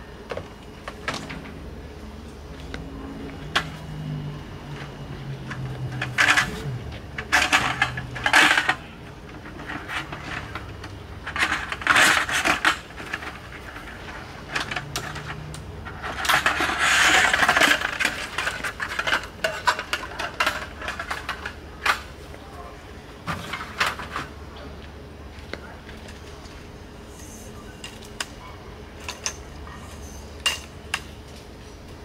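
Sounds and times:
metal slats clinking and rattling: 5.5s - 22.0s.

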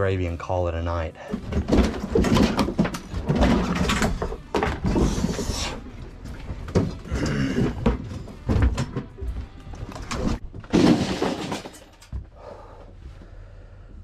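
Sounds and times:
wood knocking and thumping: 1.3s - 5.3s.

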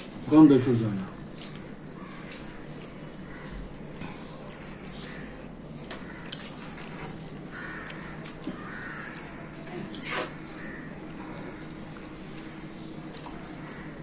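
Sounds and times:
crow cawing: 2.0s - 3.8s, 5.0s - 6.4s, 7.5s - 9.6s, 10.4s - 11.7s, 13.6s - 14.0s.

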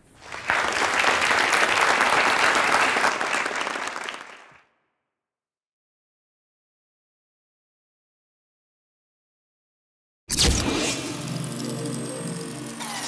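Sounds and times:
audience applauding: 0.0s - 4.7s.

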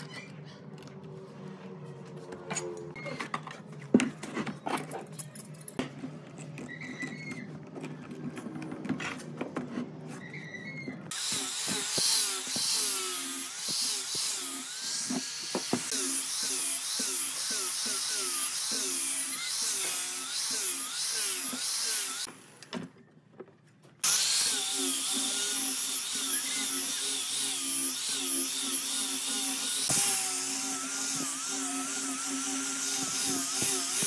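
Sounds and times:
angle grinder sanding wood: 11.1s - 22.3s, 24.0s - 34.0s.

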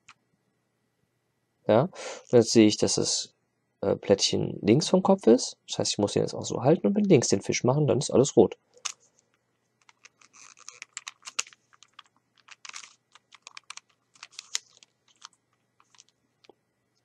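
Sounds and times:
puzzle cube clicking as turned: 9.8s - 16.2s.

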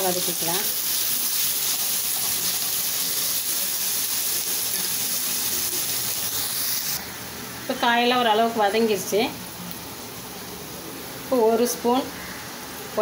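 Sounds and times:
vegetables sizzling in hot oil: 0.0s - 7.2s.

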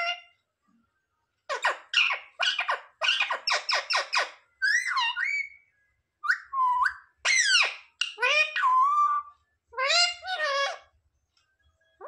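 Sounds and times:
parakeet calling: 1.5s - 5.6s, 6.3s - 10.9s.

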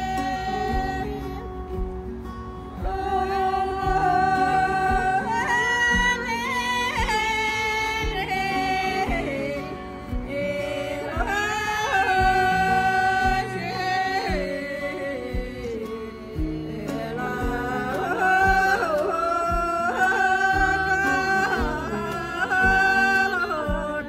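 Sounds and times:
instrumental accompaniment with beat: 0.0s - 5.2s, 5.8s - 24.0s
person singing long wavering notes: 2.8s - 24.0s.

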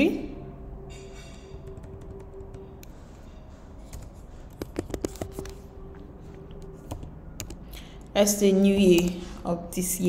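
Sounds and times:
keyboard keys clicking: 1.6s - 3.0s, 3.8s - 5.6s, 6.3s - 9.2s.

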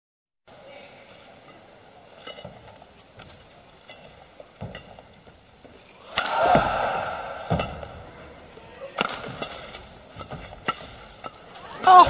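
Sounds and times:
faint hall ambience: 0.5s - 12.0s
racket hitting shuttlecock: 6.0s - 8.1s, 8.8s - 12.0s.

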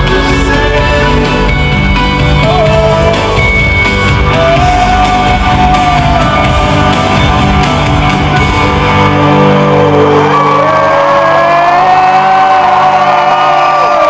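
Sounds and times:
live rock band playing: 0.0s - 14.0s
crowd shouting and whooping: 4.2s - 14.0s.

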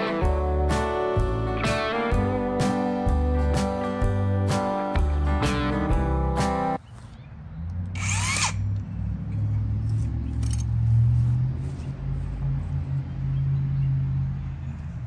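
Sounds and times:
power tool humming: 8.0s - 8.7s.

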